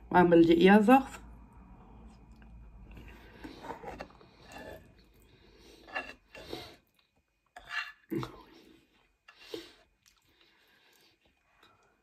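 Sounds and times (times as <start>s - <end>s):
wet chewing mouth sounds: 10.0s - 11.9s.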